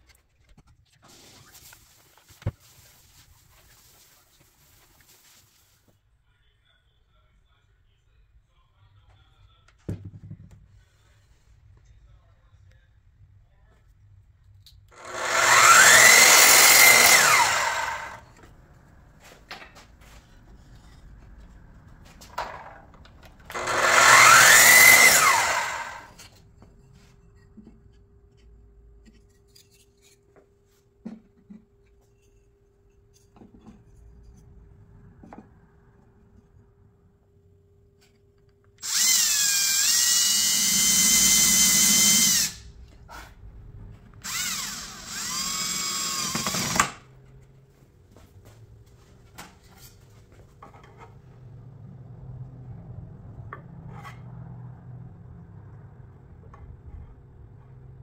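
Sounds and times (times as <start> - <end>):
drill driving screws into wood: 15.0 - 18.2, 23.5 - 26.3, 38.8 - 42.6, 44.2 - 47.0
power tool whirring: 15.0 - 18.4, 23.5 - 26.3, 38.8 - 42.6, 44.2 - 47.0.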